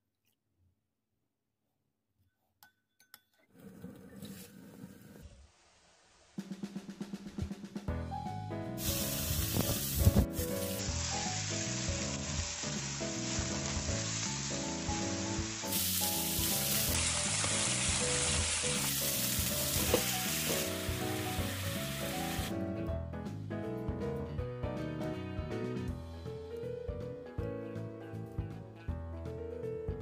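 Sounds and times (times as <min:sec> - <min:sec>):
background music: 0:07.1 - 0:30.0
meat sizzling in a frying pan: 0:08.8 - 0:22.5.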